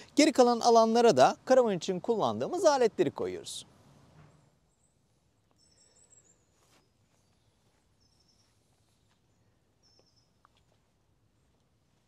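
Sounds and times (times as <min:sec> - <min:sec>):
faint high bird chirps: 0:04.4 - 0:10.8.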